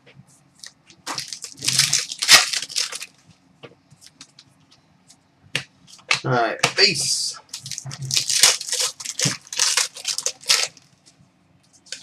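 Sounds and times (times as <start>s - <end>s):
wrapper crinkling and tearing: 0.6s - 3.2s, 7.5s - 10.9s.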